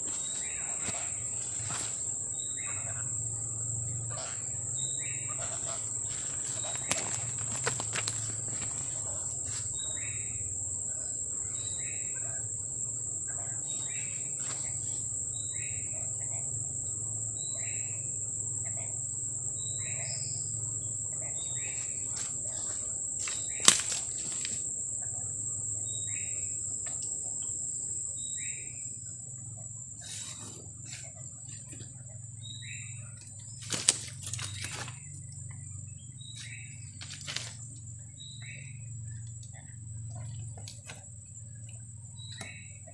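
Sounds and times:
high-pitched insect whine: 0.0s - 42.9s.

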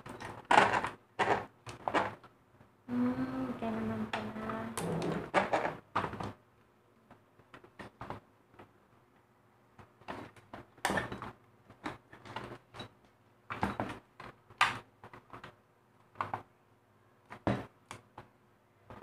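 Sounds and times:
plastic housing knocks and creaks: 4.8s - 6.4s.

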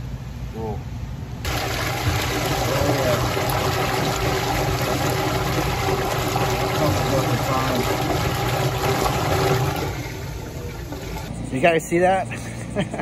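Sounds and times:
water rushing in drain pipe: 1.5s - 11.3s.

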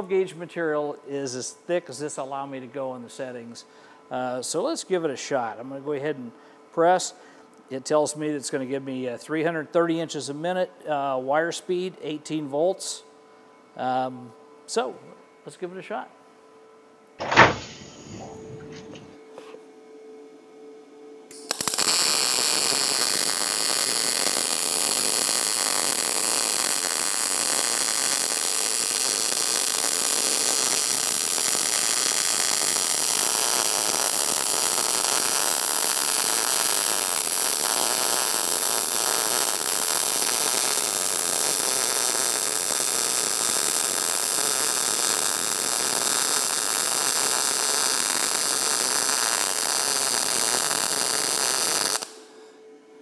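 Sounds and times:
welding arc crackling hiss: 17.2s - 19.2s, 21.3s - 52.3s.

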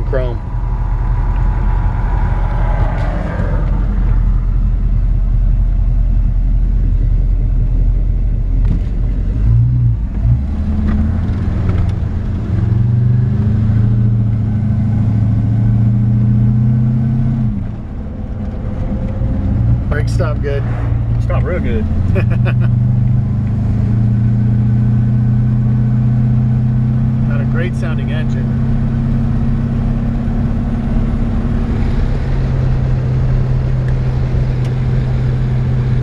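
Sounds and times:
truck engine running: 0.0s - 9.3s
road noise: 0.0s - 36.0s.

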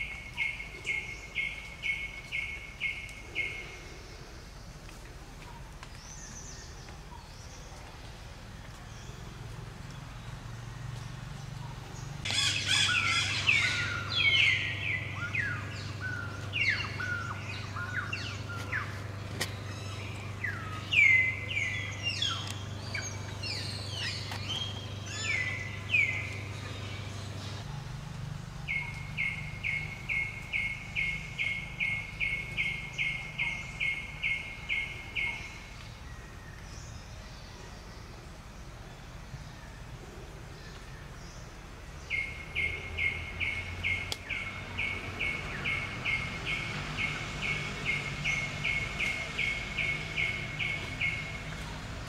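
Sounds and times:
bird calling: 10.9s - 27.9s, 28.7s - 36.8s, 40.7s - 52.0s.

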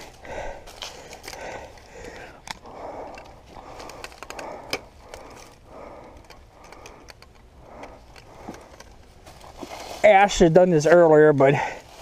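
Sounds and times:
tripod clicks and knocks: 0.8s - 9.7s
rustling: 2.9s - 10.9s.

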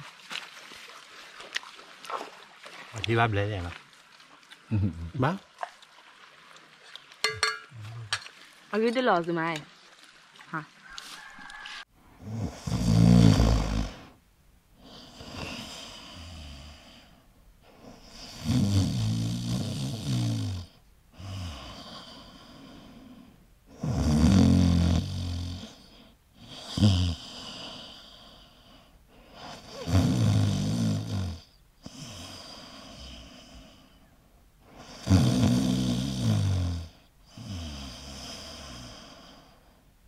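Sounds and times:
quiet breaths: 11.1s - 40.0s
person snoring: 12.2s - 14.2s, 18.0s - 23.1s, 23.8s - 28.6s, 29.4s - 33.8s, 34.8s - 39.5s.

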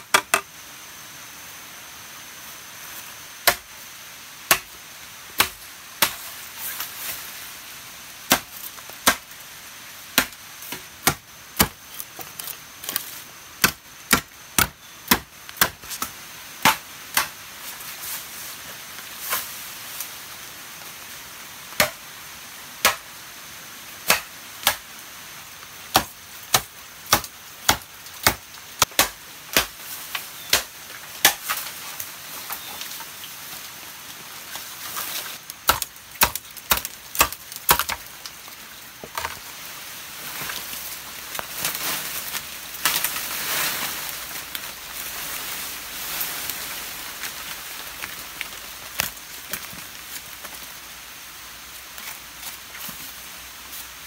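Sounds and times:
blade chopping bamboo: 3.4s - 3.7s, 4.5s - 4.7s, 5.4s - 6.3s, 8.3s - 9.3s, 10.2s - 17.4s, 21.8s - 22.0s, 22.8s - 23.0s, 24.0s - 24.8s, 25.9s - 29.8s, 30.5s - 31.7s, 35.6s - 38.1s.

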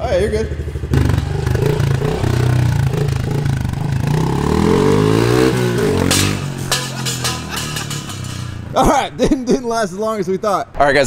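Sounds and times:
dirt bike engine revving: 0.5s - 8.8s.

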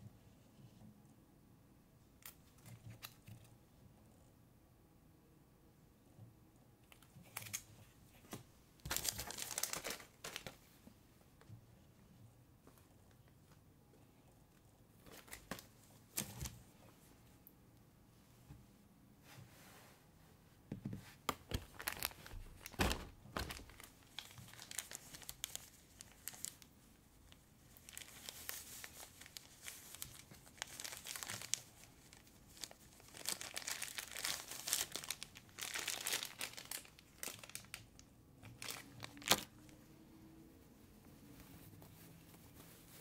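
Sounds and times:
plastic wrapping crinkling: 8.8s - 10.7s, 21.4s - 26.7s, 27.3s - 39.8s.

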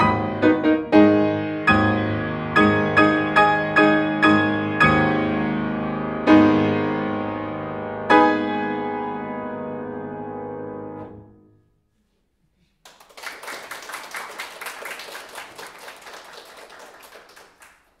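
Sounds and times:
audience applause: 12.8s - 18.0s.

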